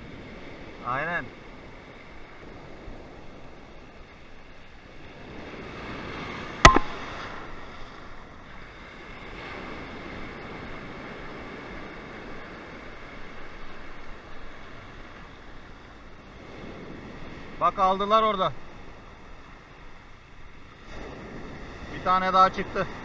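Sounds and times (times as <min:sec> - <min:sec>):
sea waves breaking on beach: 0:00.0 - 0:23.0
sharp click: 0:06.7 - 0:07.0.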